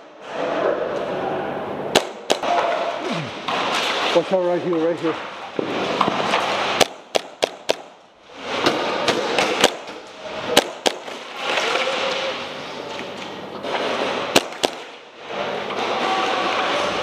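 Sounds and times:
airsoft guns firing: 1.9s - 3.8s, 6.6s - 8.1s, 9.0s - 11.6s, 14.3s - 15.1s.

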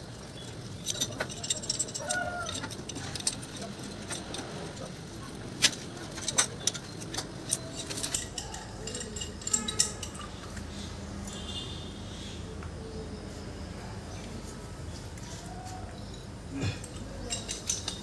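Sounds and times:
metal tools clinking on pipe: 0.4s - 11.7s, 15.5s - 18.0s.

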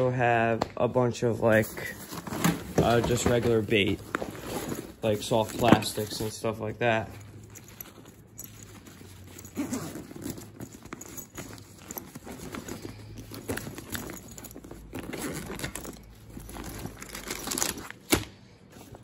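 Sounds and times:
low steady hum: 0.0s - 19.0s
taps knocks and rustles of handling: 2.1s - 6.4s.

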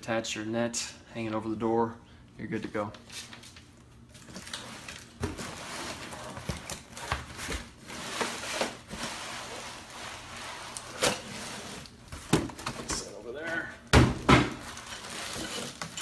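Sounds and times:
cardboard and plastic rustling: 3.0s - 16.0s.

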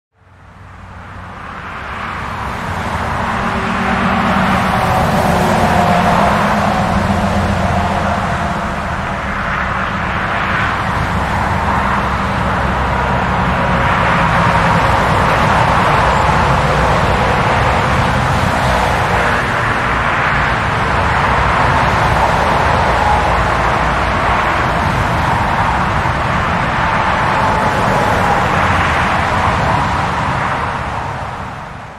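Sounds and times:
highway traffic rushing: 0.1s - 31.9s
low traffic rumble: 0.1s - 31.9s.

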